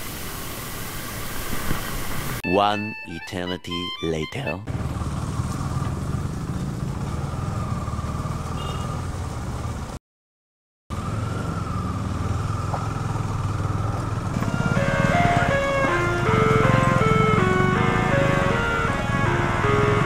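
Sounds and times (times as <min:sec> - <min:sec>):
music: 0:02.4 - 0:04.7, 0:14.4 - 0:20.0
motorcycle engine running: 0:04.7 - 0:09.9, 0:11.2 - 0:20.0.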